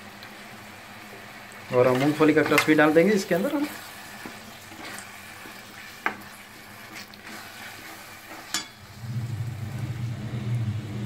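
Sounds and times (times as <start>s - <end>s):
paste sizzling: 0.0s - 9.8s
wooden spoon stirring paste: 1.6s - 8.8s
low hum: 8.8s - 11.0s.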